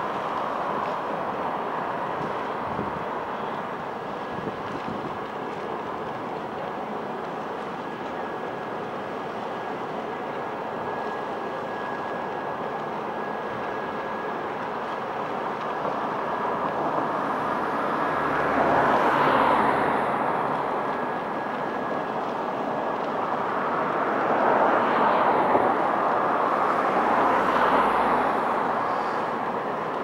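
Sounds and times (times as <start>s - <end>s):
ship engine drone with whine: 0.0s - 30.0s
passing vehicle: 16.2s - 22.4s, 23.0s - 30.0s.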